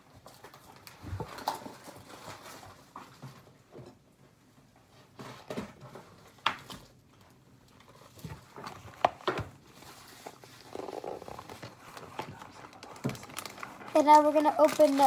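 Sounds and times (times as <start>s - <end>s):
packaging rustling: 7.8s - 15.0s.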